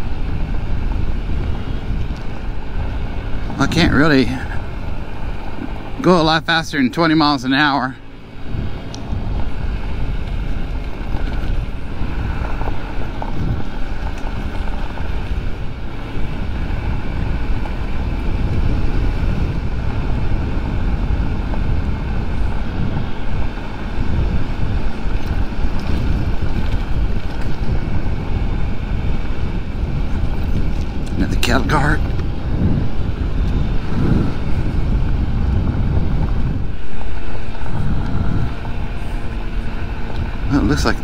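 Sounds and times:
scooter engine running: 0.0s - 41.0s
tyres rumbling on gravel: 0.0s - 41.0s
wind buffeting microphone: 0.0s - 41.0s.

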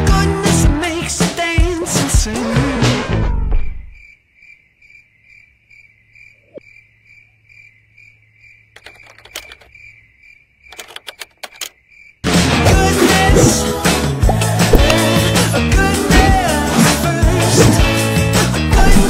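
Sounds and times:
cricket chirp sound effect: 3.6s - 12.3s
plastic clicks: 8.8s - 9.7s, 10.7s - 11.8s.

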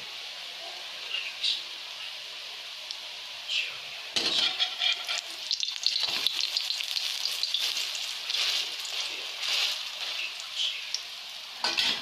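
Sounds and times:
fritters sizzling in hot oil: 0.0s - 12.0s
metal spatula scraping a pan: 4.2s - 6.5s.

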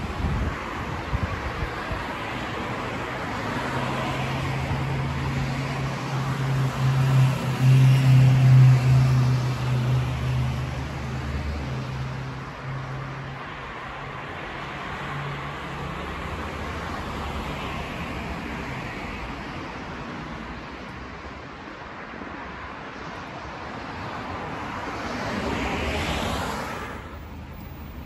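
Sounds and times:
traffic noise: 0.0s - 28.0s.

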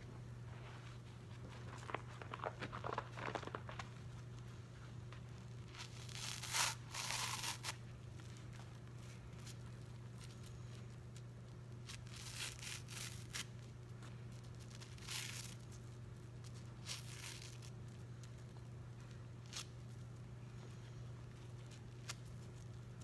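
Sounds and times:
steady low hum: 0.0s - 23.0s
wet sponge tearing: 5.7s - 7.8s.

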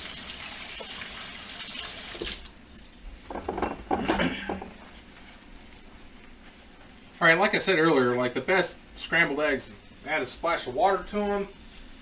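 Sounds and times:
kitchen tap running: 0.0s - 4.7s
dishes and utensils clinking: 3.3s - 4.8s.

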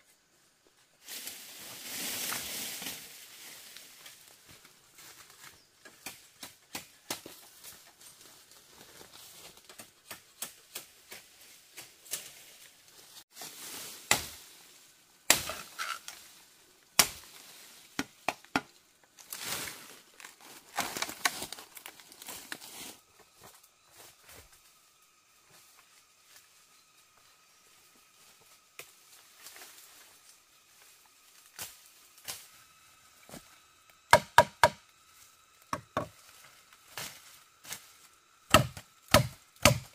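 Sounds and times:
blade cutting and snapping wood: 15.3s - 16.2s, 38.5s - 39.9s.

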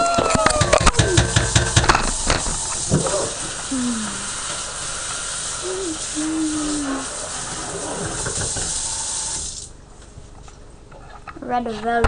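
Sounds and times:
faucet water running into sink: 0.6s - 9.8s.

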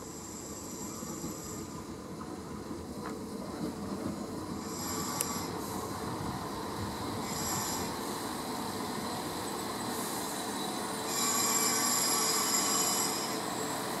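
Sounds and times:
diesel train rolling and braking: 0.0s - 14.0s
high-pitched brake squeal: 4.6s - 5.9s, 7.2s - 8.2s, 9.4s - 14.0s.

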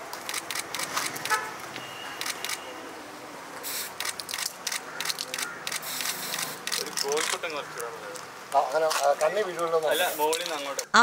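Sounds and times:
camera shutter clicks: 0.2s - 1.4s, 2.1s - 2.7s, 3.7s - 7.4s.

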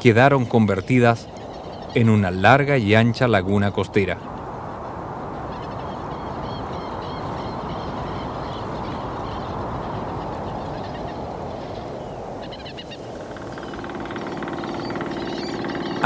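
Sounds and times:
birds calling: 0.0s - 16.0s
steady rushing background: 12.7s - 16.0s
steady low hum: 13.2s - 16.0s.

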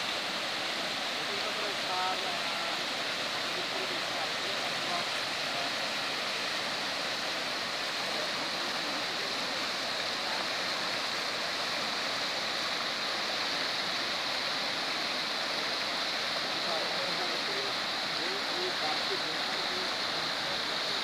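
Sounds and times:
floodwater rushing: 0.0s - 21.0s.

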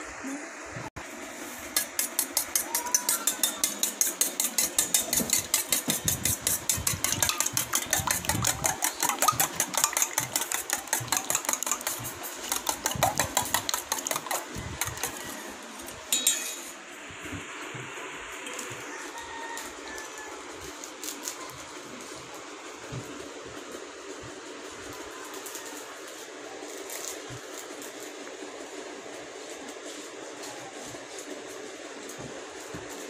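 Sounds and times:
eggs beaten in metal bowl: 1.7s - 16.7s.

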